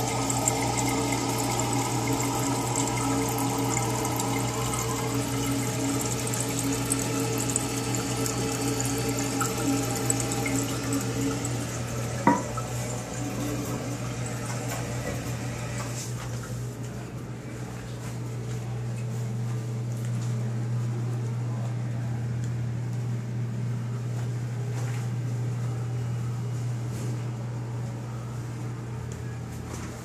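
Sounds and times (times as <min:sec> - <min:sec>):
toilet tank refilling: 0:00.0 - 0:16.3.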